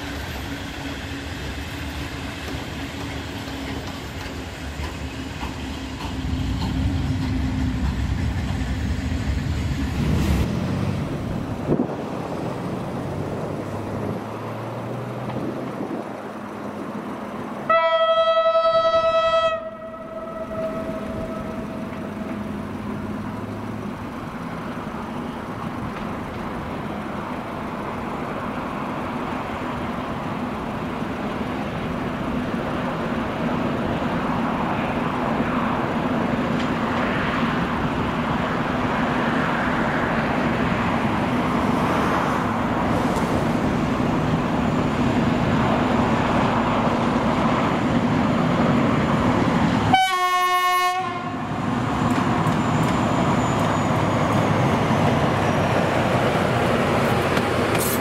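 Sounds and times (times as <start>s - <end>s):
diesel locomotive engine drone: 0.0s - 58.0s
locomotive horn blast: 17.7s - 22.4s, 49.8s - 51.5s.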